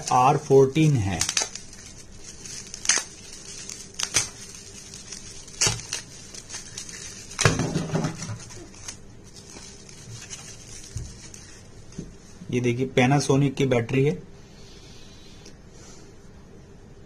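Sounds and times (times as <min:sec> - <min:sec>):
plastic wrapping crinkling: 0:00.0 - 0:12.5.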